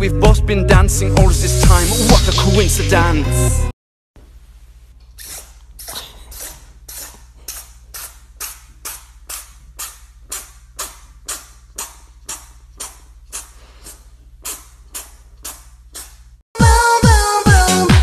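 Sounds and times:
steady low hum: 0:04.2 - 0:16.4
kitten sneezing: 0:05.2 - 0:16.3.

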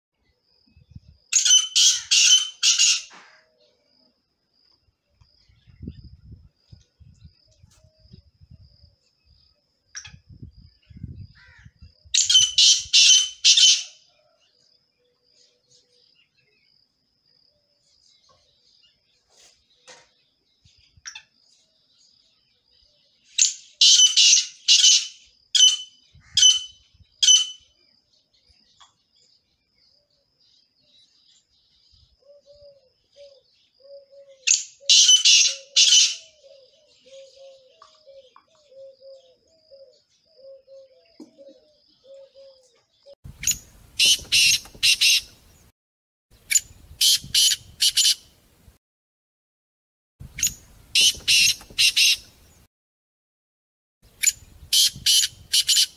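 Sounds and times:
partridge calling: 0:01.4 - 0:03.6, 0:10.9 - 0:14.0, 0:23.4 - 0:27.7, 0:32.2 - 0:45.4, 0:46.4 - 0:48.2, 0:50.2 - 0:52.3, 0:54.1 - 0:55.9.

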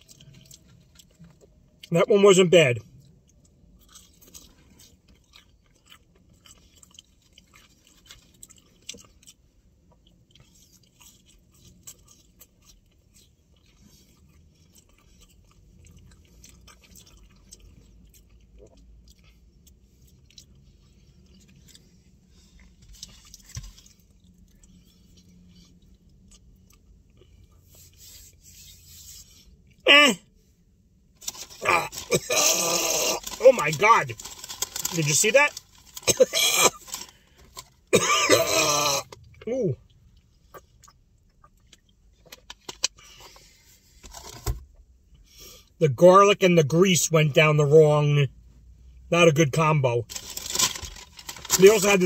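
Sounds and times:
person chewing: 0:00.0 - 0:01.9, 0:02.8 - 0:28.3, 0:31.2 - 0:43.5.

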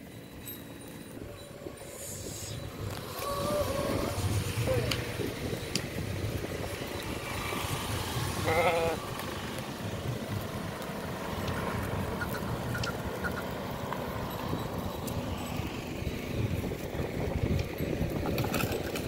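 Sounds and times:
sheep bleating: 0:08.4 - 0:09.0.

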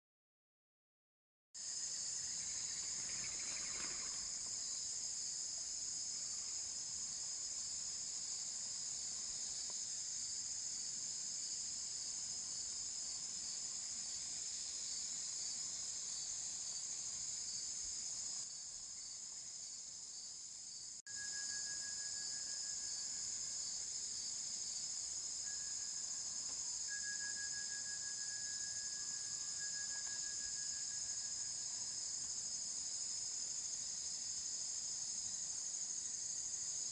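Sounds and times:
high-pitched insect chorus: 0:01.6 - 0:36.9
lower single insect note: 0:21.1 - 0:32.5.

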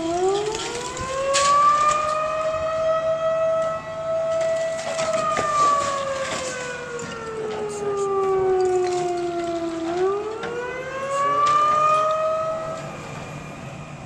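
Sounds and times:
excavator knocking brick debris: 0:00.0 - 0:02.2, 0:04.4 - 0:07.2
siren wailing: 0:00.0 - 0:14.0.

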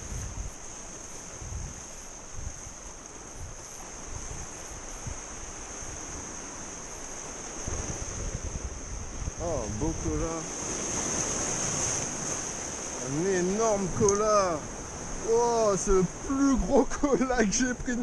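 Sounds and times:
sea surf against rocks: 0:00.0 - 0:18.0
wind gusting on microphone: 0:00.0 - 0:18.0.

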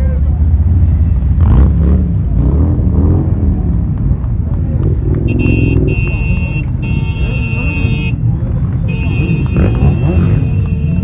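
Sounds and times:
motorcycle engines rumbling: 0:00.0 - 0:11.0
crowd voices: 0:03.0 - 0:11.0
vehicle horn blast: 0:05.3 - 0:08.2, 0:08.9 - 0:11.0.

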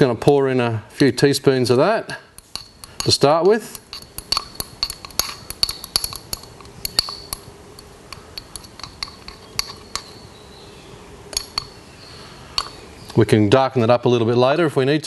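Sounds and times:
metal rod clinking against tin: 0:02.4 - 0:10.3, 0:11.3 - 0:11.8, 0:12.6 - 0:12.8.

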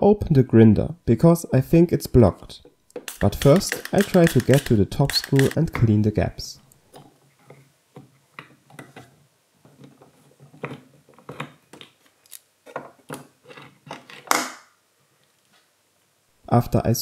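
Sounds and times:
tool clicking and scraping plastic: 0:03.0 - 0:05.9.

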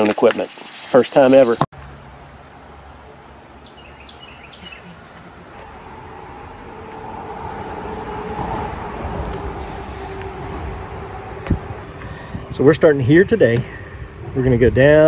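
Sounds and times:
passing vehicle rumble: 0:01.8 - 0:15.0
bird chirping: 0:03.6 - 0:05.7
steady hum: 0:04.9 - 0:15.0.

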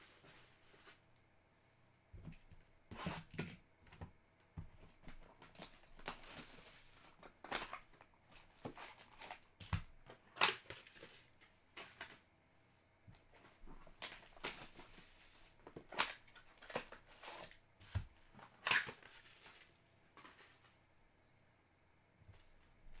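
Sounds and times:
plastic wrapper crinkling: 0:05.4 - 0:08.0, 0:18.3 - 0:19.8.

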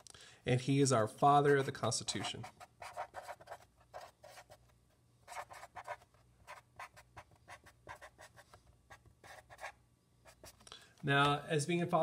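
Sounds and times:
marker scratching on paper: 0:01.4 - 0:04.7, 0:05.3 - 0:10.6.

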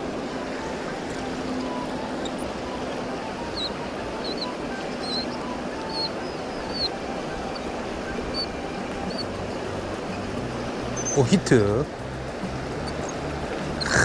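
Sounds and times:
river rushing: 0:00.0 - 0:14.0
high bird chirps: 0:03.5 - 0:06.9, 0:11.0 - 0:11.2.

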